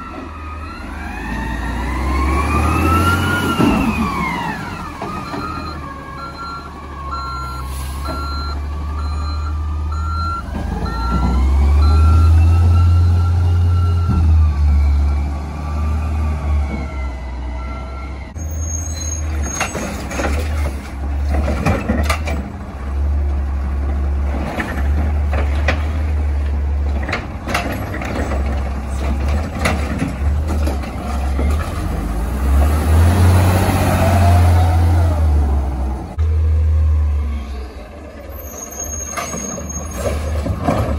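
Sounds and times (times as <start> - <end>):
garbage truck running: 0.0 - 40.9
reversing alarm beeping: 4.6 - 19.0.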